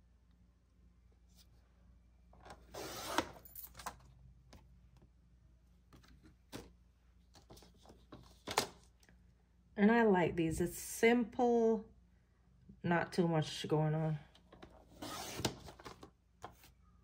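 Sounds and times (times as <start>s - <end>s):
paper trimmer blade scraping: 15.0s - 15.6s.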